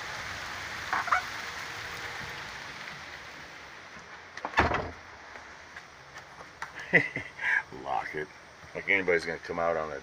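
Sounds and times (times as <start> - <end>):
rain hiss: 0.0 - 10.0
loud thump: 4.4 - 5.0.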